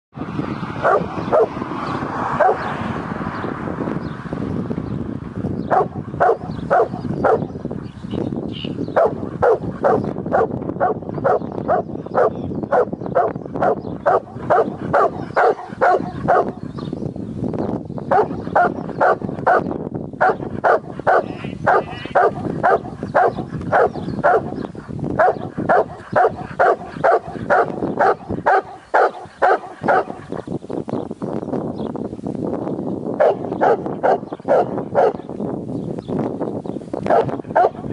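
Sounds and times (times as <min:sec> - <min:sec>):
dog barking: 0:00.8 - 0:01.6, 0:02.4 - 0:02.7, 0:05.7 - 0:07.5, 0:09.0 - 0:16.6, 0:18.1 - 0:30.3, 0:33.2 - 0:35.2, 0:37.1 - 0:37.9.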